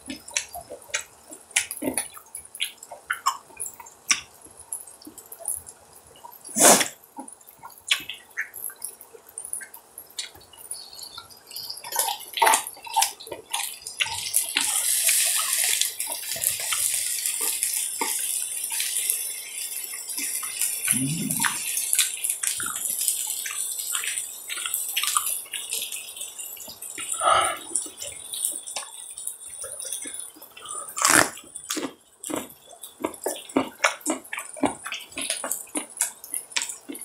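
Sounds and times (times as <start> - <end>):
light crackles and clicks: 0.0 - 37.0
meat sizzling on a griddle: 10.8 - 30.5.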